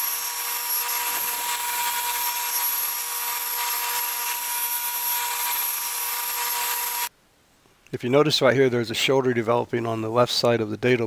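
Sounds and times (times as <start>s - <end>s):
table saw whining: 0.0s - 7.1s.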